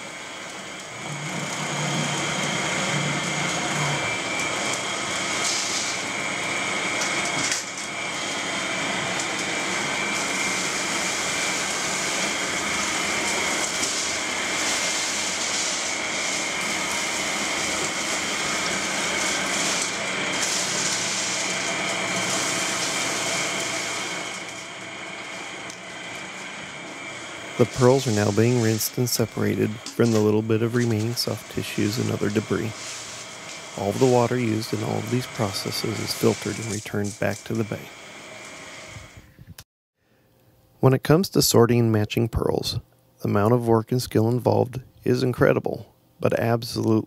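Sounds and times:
steady high whine: 0.0 - 39.6, 40.4 - 47.0
hose water splashing in baskets: 1.2 - 26.4, 27.4 - 37.9.

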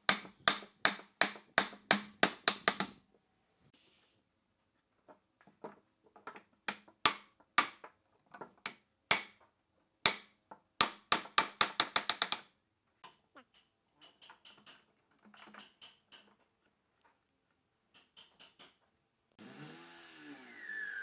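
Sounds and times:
hammer striking wooden block: 0.0 - 3.0, 6.7 - 7.8, 9.1 - 9.4, 10.1 - 12.4
faint knocks and handling sounds: 3.0 - 10.8, 12.3 - 19.3.

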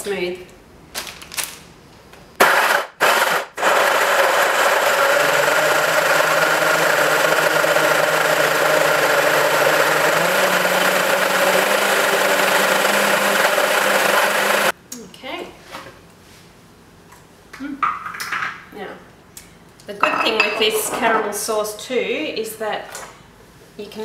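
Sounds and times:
blender running at high speed: 2.4 - 14.7.

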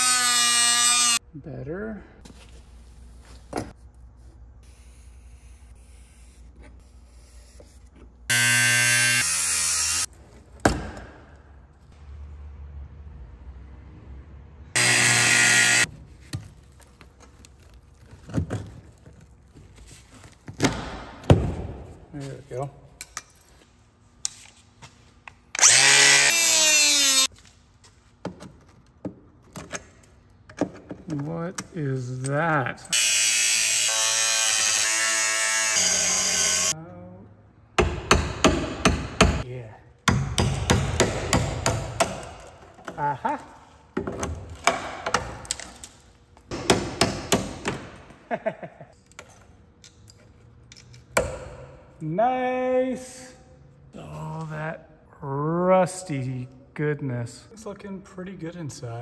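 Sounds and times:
angle grinder cutting metal: 14.8 - 15.9, 25.6 - 27.3, 33.0 - 36.7.

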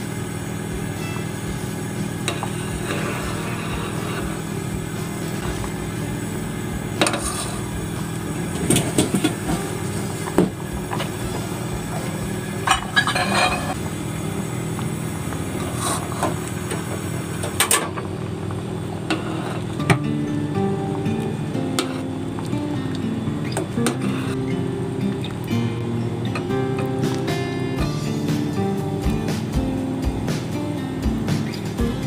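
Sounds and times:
steady low hum: 0.0 - 32.0
ladle scraping metal pot: 7.0 - 7.7, 12.6 - 13.8, 15.6 - 16.4, 23.8 - 24.4.

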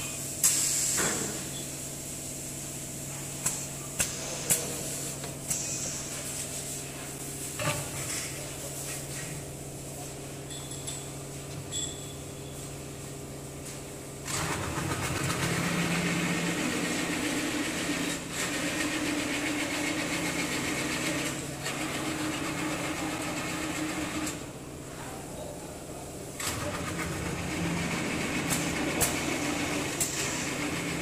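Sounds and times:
workshop machinery hum: 0.0 - 31.0
motor running under load: 14.2 - 24.4.

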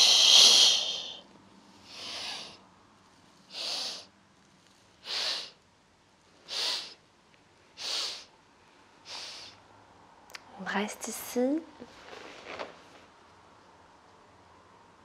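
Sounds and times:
woman sniffing in breaths: 0.0 - 1.2, 1.8 - 2.6, 3.5 - 4.1, 5.0 - 5.6, 6.4 - 7.0, 7.7 - 8.3, 9.0 - 9.6.

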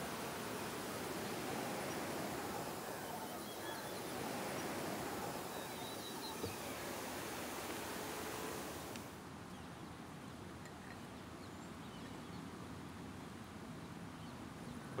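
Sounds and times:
steady hiss-like background noise: 0.0 - 15.0
faint bird chirps: 1.1 - 8.2.

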